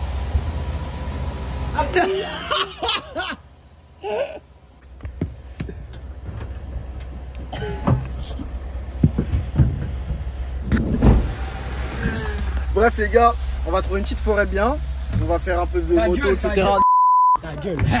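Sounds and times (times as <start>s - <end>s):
vehicle engine rumbling: 0.0s - 16.8s, 17.4s - 18.0s
voices: 12.0s - 16.8s.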